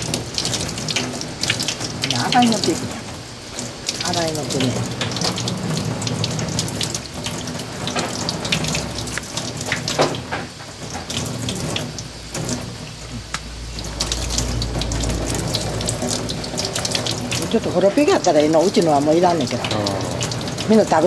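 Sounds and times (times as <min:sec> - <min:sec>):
low rumble: 0:13.2 - 0:17.5.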